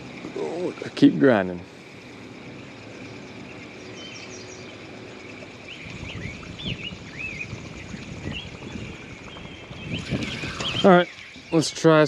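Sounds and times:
outdoor background hiss: 0.0 - 12.0
high bird chirps: 2.4 - 12.0.

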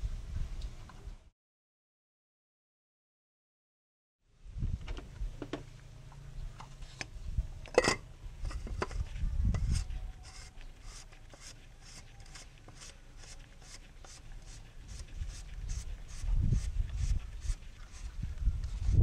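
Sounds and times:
gloved hand rubbing and handling: 8.4 - 19.0.

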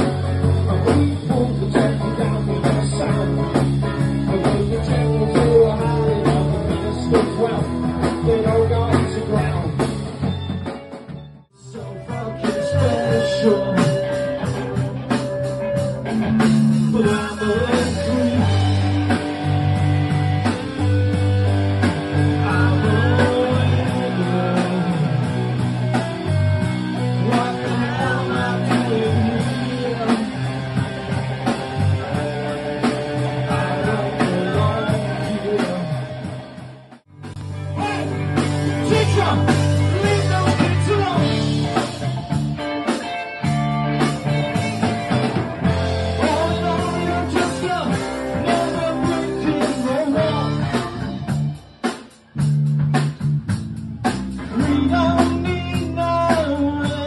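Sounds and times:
drum kit: 0.0 - 57.0
electric guitars: 0.0 - 57.0
man singing into a microphone: 0.6 - 9.8, 11.6 - 14.5, 16.9 - 18.8, 22.2 - 25.5, 27.0 - 30.7, 33.3 - 36.2, 38.8 - 41.6, 46.2 - 51.1, 54.5 - 57.0.

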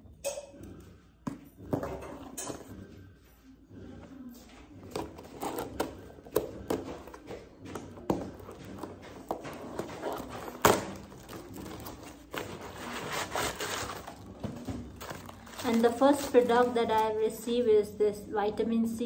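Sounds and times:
packaging rustling and crinkling: 8.1 - 17.2.

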